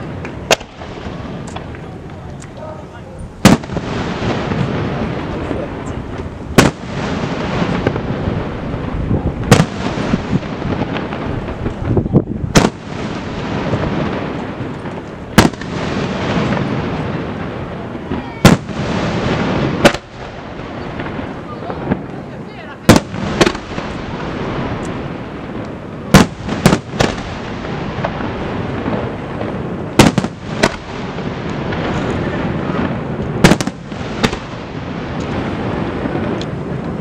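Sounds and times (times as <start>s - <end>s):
firework bangs: 0.0s - 37.0s.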